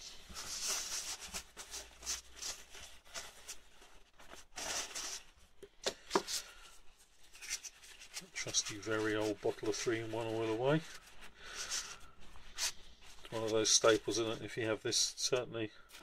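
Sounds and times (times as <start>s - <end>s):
paper tissue rustling and tearing: 0.0s - 16.0s.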